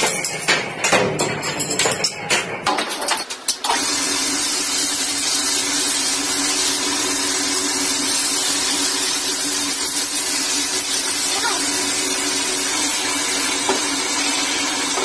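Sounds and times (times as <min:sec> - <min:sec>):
motor humming: 0:03.7 - 0:15.0
grinding wheel hissing on steel: 0:03.8 - 0:15.0.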